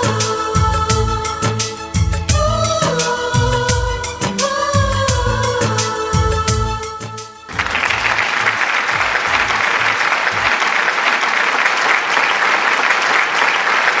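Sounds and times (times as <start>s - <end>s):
audience applauding: 7.5s - 14.0s.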